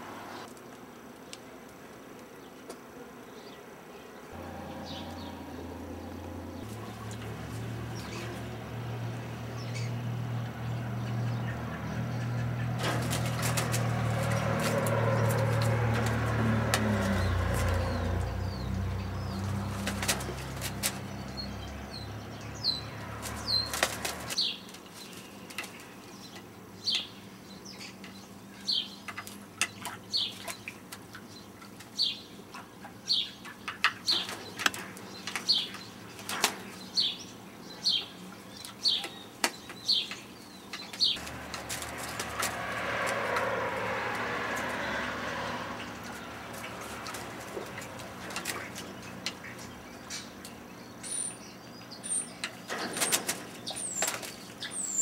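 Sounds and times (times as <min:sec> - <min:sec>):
parrot flapping and splashing: 0:12.8 - 0:17.9, 0:19.4 - 0:21.2, 0:23.0 - 0:24.4, 0:41.2 - 0:45.0, 0:46.1 - 0:49.2.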